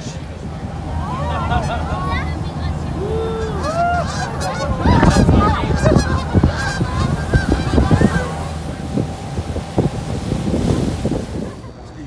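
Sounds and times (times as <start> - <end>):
steady low rumble: 0.0 - 12.0
geese honking: 3.2 - 11.6.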